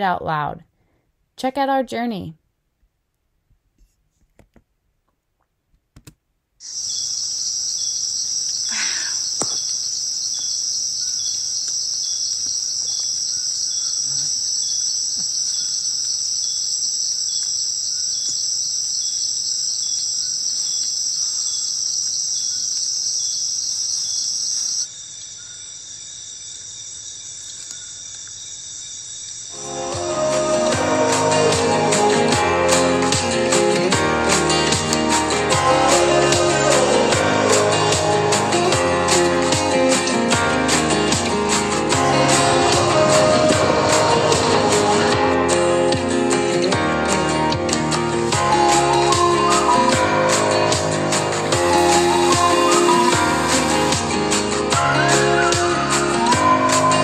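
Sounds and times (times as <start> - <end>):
insect chorus drone: 6.6 - 46.7, 51.4 - 54.6.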